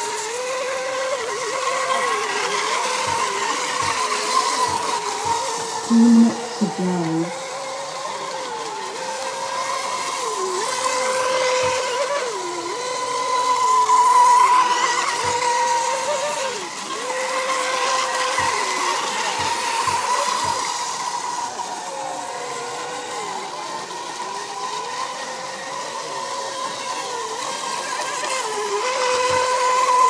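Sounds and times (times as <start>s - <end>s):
boat motors whining: 0.0s - 30.0s.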